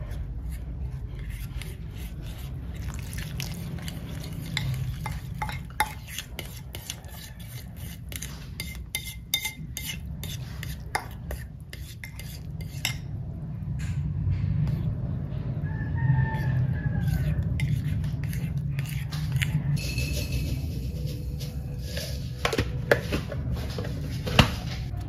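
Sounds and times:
utensil scraping in a bowl: 0.0 - 13.2, 16.1 - 25.0
low steady hum: 8.8 - 25.0.

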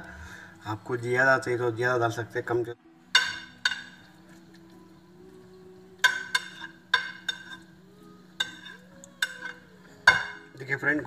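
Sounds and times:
metal spoon clinking on dish: 3.1 - 4.2, 6.0 - 10.6.

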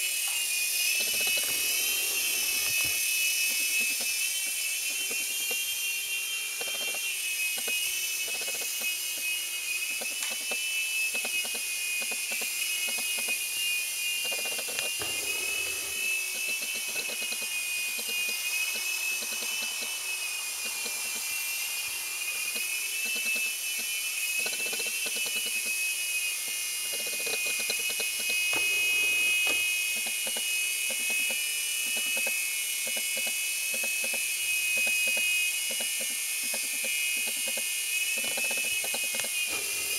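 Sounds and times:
toy helicopter motors whining: 0.0 - 39.9.

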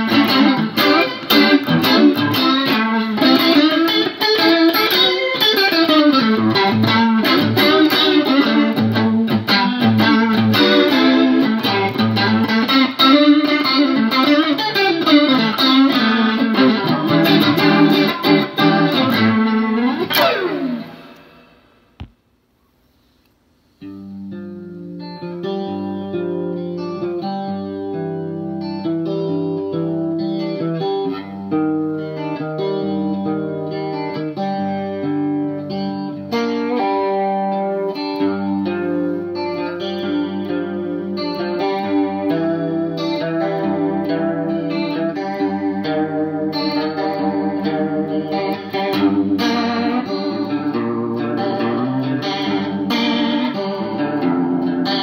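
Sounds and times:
electric guitar with rotary swirl: 0.0 - 55.0.

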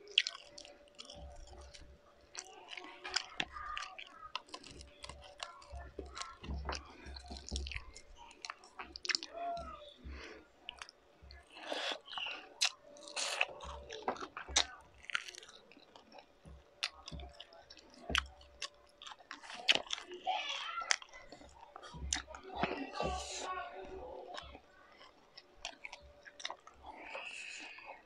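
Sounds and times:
person chewing with wet smacks: 0.0 - 28.0.

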